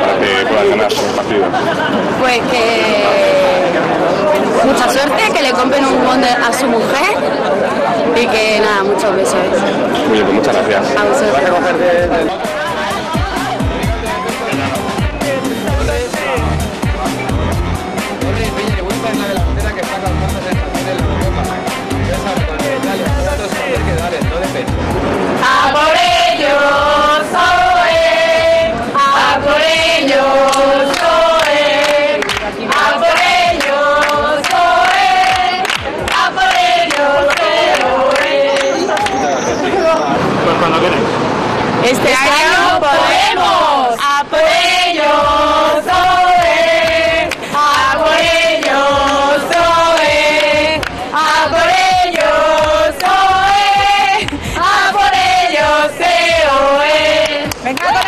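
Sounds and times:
group chanting in unison: 25.0 - 39.4, 41.8 - 57.5.

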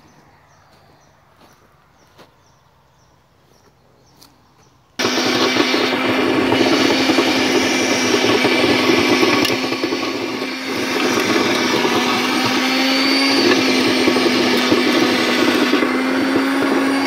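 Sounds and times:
electric tiller motor running: 5.0 - 17.0
tines churning through dry soil: 5.0 - 17.0.

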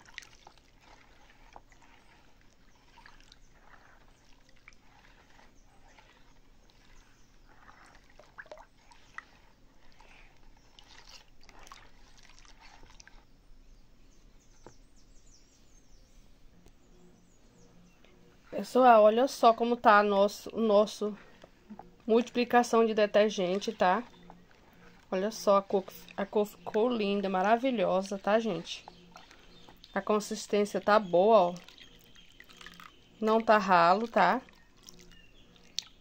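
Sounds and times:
liquid sloshing while stirred: 0.0 - 13.3, 18.5 - 36.0.

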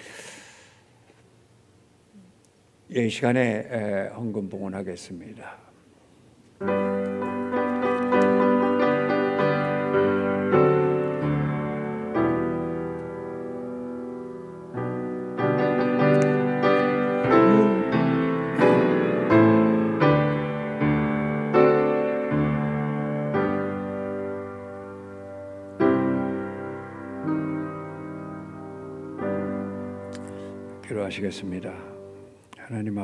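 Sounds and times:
slow piano chords: 6.6 - 32.6.

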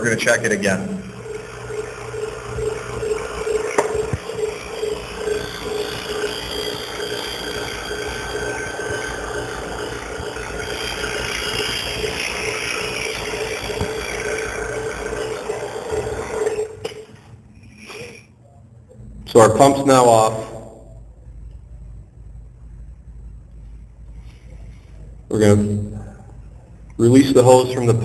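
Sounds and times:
vacuum pump running: 0.0 - 18.2.

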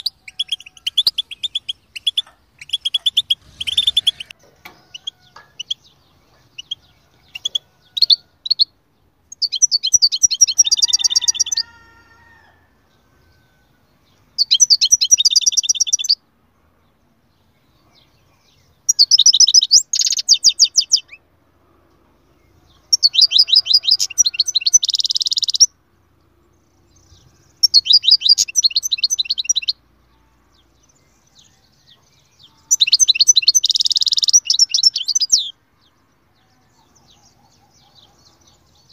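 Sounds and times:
bird calling and twittering: 0.0 - 8.7, 9.3 - 12.0, 17.7 - 21.2, 22.6 - 25.8, 26.8 - 35.6.

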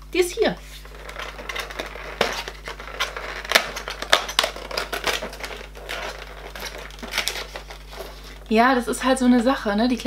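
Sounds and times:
cardboard rustling and scraping: 0.7 - 8.5.

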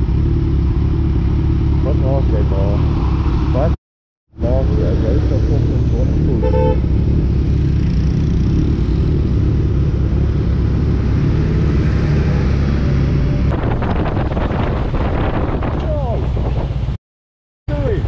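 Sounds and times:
rough pulsing motorcycle engine: 0.0 - 3.8, 4.4 - 16.6
motorcycle engine: 0.0 - 16.6
wind rumble: 6.7 - 17.0.

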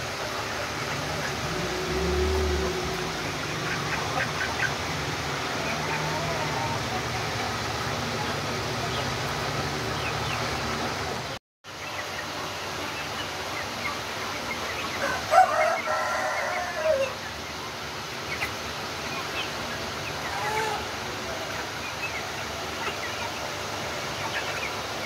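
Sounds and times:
chicks peeping and clucking: 0.0 - 25.0
young cockerel crowing: 15.0 - 17.2.

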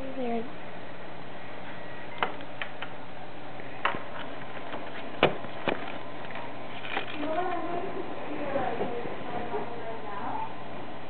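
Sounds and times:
clicks and knocks of handled objects: 3.9 - 7.6.

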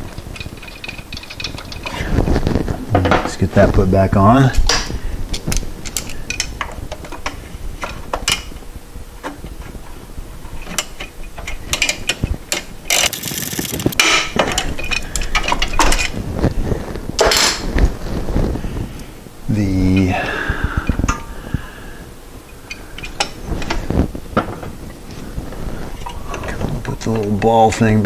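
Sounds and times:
metal parts clicking and clinking: 0.4 - 1.9, 10.8 - 16.1.

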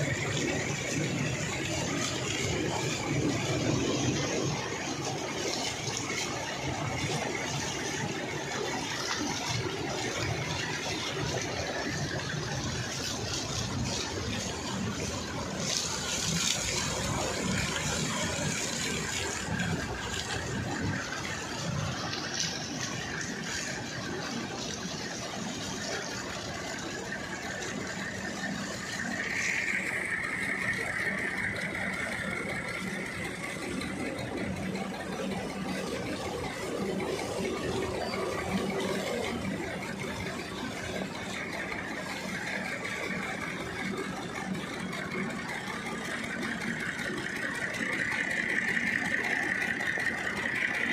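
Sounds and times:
motor running: 0.0 - 50.9
paddle wheel churning water: 0.0 - 50.9.

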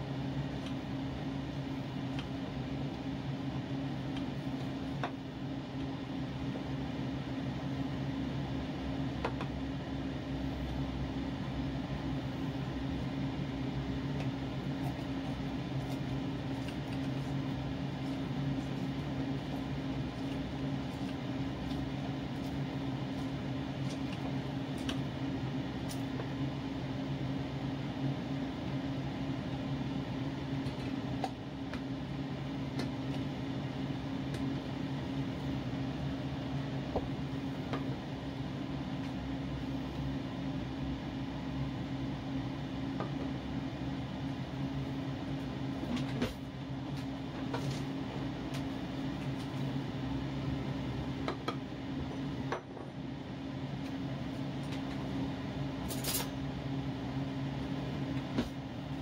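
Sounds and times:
low mechanical hum: 0.0 - 59.0.

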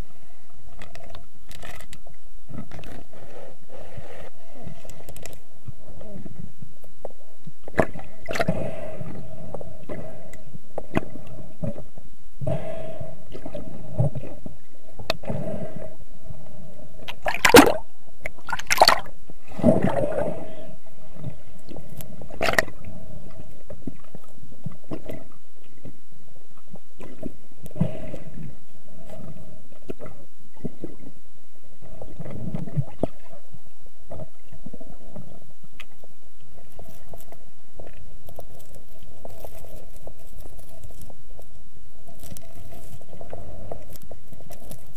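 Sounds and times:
muffled underwater gurgling: 7.7 - 26.0.

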